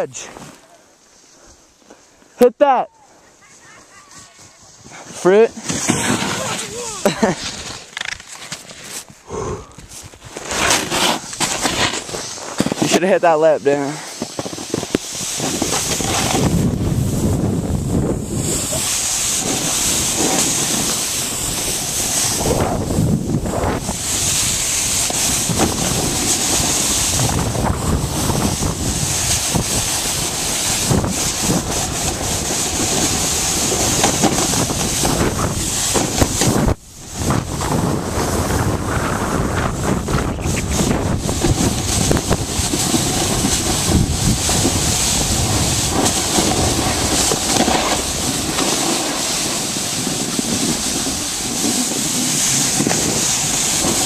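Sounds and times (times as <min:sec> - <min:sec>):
snowboard scraping snow: 0:00.0 - 0:54.0
wind on microphone: 0:14.1 - 0:54.0.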